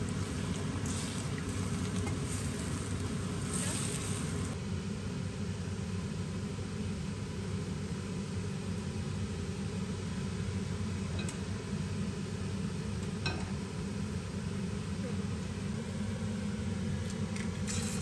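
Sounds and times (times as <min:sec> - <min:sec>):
kitchen hum: 0:00.0 - 0:04.6, 0:09.5 - 0:18.0.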